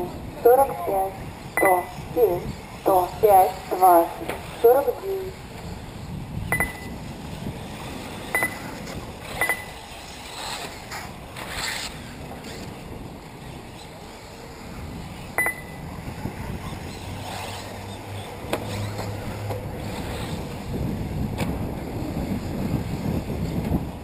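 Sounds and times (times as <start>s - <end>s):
electric rc cars running: 0.0s - 24.0s
wind rumbling on microphone: 0.0s - 24.0s
short high beep: 6.5s - 6.9s, 8.4s - 8.6s, 15.4s - 15.8s.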